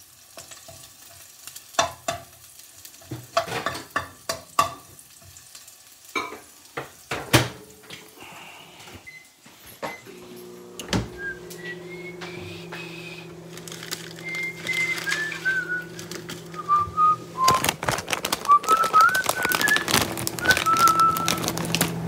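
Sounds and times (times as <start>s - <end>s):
person whistling a tune: 11.2s - 13.2s, 14.2s - 17.8s, 18.4s - 21.5s
rustling and clicks: 13.5s - 22.0s.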